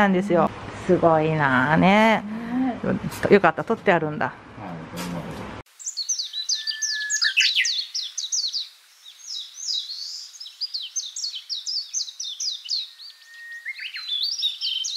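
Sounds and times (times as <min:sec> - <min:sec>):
birds chirping: 0:05.7 - 0:14.9.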